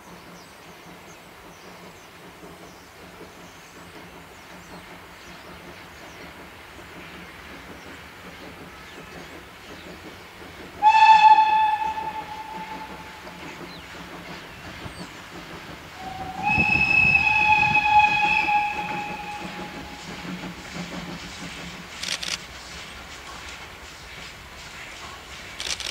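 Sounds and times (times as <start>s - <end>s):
locomotive exhaust beats: 1.6s - 25.6s
steam locomotive whistle: 10.8s - 13.4s, 16.0s - 20.6s.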